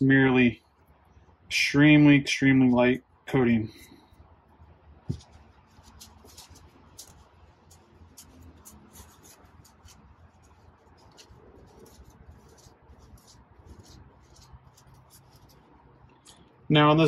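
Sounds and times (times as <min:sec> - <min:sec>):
paper towel rubbing gasket: 0:05.1 - 0:15.7.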